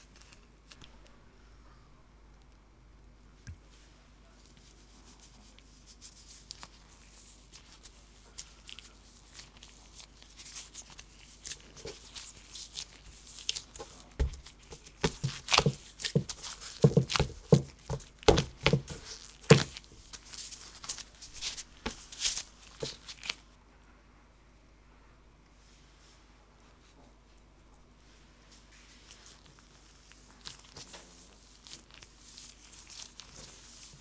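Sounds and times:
hands kneading dough: 0:03.4 - 0:23.5, 0:28.0 - 0:34.0.

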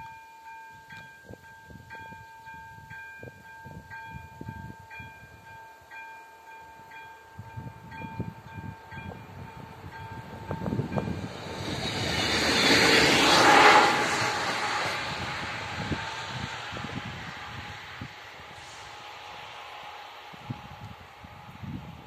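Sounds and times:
level-crossing warning bell: 0:00.0 - 0:14.8.

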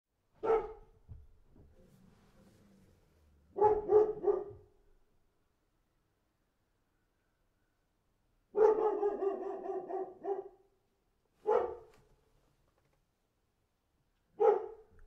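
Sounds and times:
dog barking: 0:00.4 - 0:01.0, 0:03.5 - 0:04.8, 0:08.5 - 0:10.7, 0:11.4 - 0:12.0, 0:14.3 - 0:15.0.

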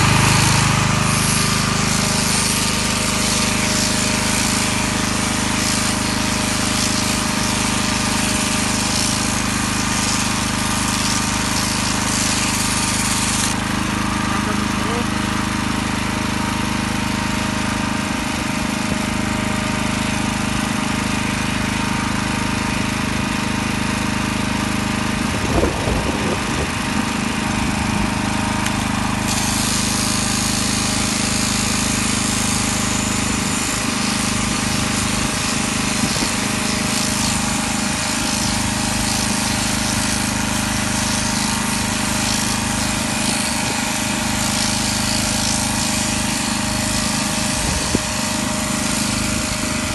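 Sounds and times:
shearing machine buzzing: 0:00.0 - 0:49.9.

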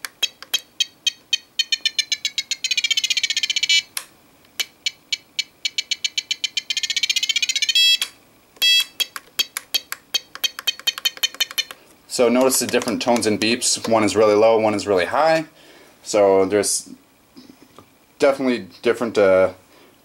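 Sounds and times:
longer steady beeps: 0:00.2 - 0:03.9, 0:04.8 - 0:08.0, 0:08.6 - 0:11.7.

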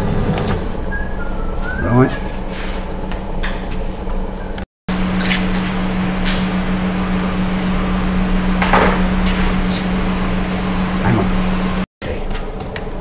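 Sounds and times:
low machine hum: 0:00.0 - 0:12.3.

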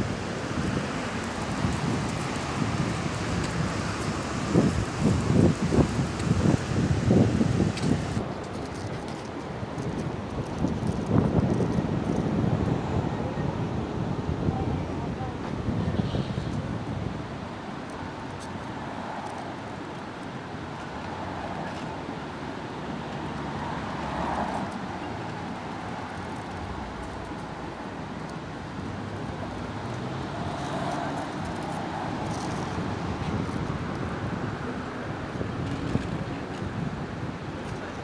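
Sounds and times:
road traffic: 0:00.0 - 0:38.0.

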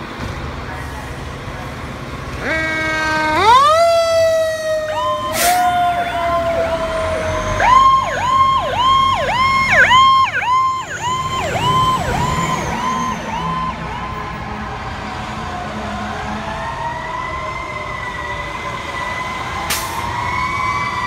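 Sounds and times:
siren winding up: 0:02.4 - 0:13.8.

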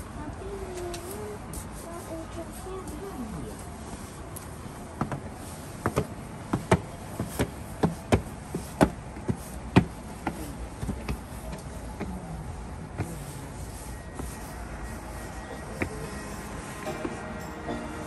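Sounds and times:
footsteps going up steps: 0:03.9 - 0:18.0.

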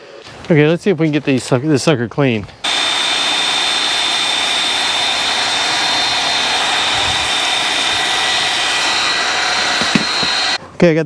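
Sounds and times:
motor and pump whine: 0:02.6 - 0:10.6
pressure washer spraying: 0:02.6 - 0:10.6.

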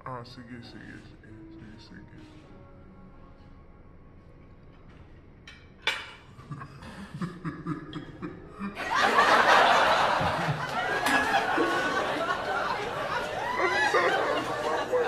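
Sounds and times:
person laughing: 0:06.4 - 0:15.0.

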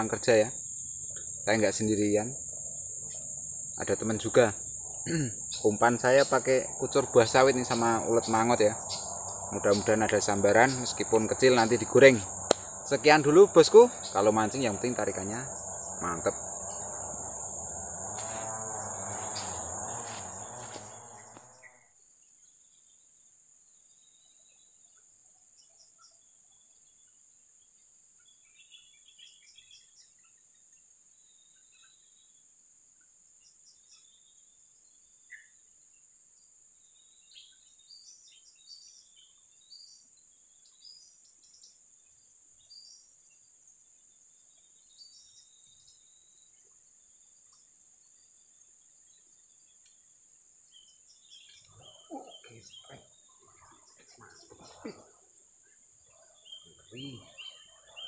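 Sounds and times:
insects trilling: 0:00.0 - 0:22.4, 0:36.0 - 0:58.0
loud noise: 0:04.3 - 0:21.6.

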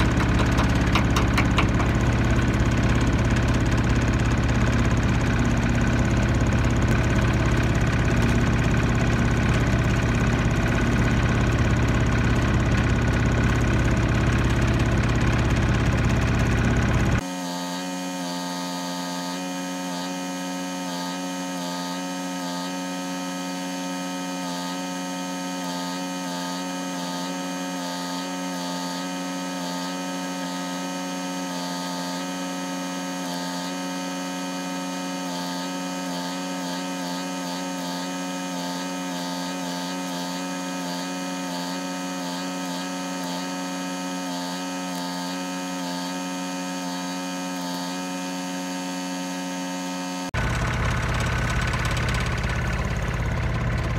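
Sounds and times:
engine-driven welder running: 0:00.0 - 0:53.9.

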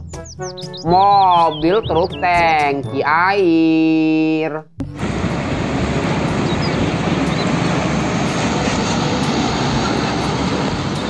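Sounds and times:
diesel truck engine rumble: 0:04.8 - 0:11.0
road and wind noise: 0:04.8 - 0:11.0.

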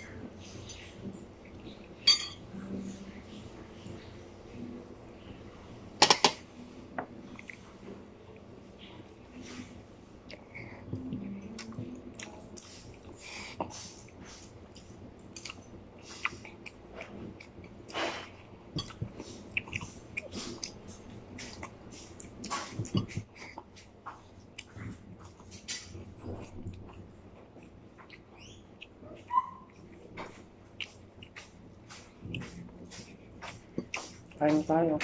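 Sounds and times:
mouth chewing clicks and smacks: 0:14.8 - 0:17.8, 0:18.8 - 0:30.1, 0:30.7 - 0:34.6.

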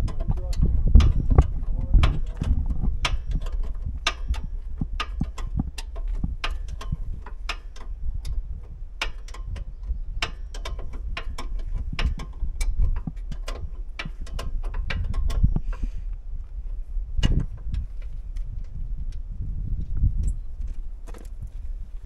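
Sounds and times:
hand ratchet clicking: 0:00.0 - 0:08.4, 0:09.0 - 0:15.9.

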